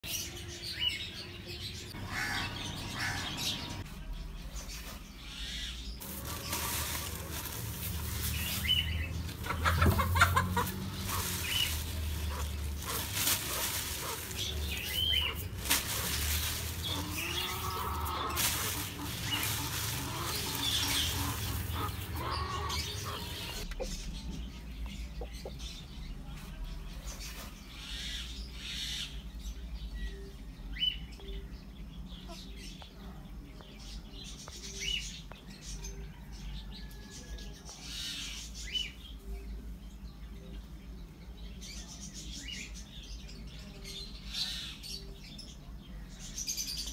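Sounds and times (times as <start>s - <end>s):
birds chirping: 0.0s - 46.9s
rustling handling noise: 6.0s - 23.7s.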